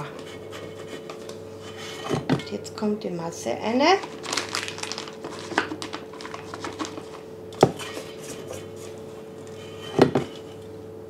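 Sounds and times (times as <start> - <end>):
faint steady hum: 0.0 - 11.0
piping bag crinkling and scraping: 3.9 - 10.6.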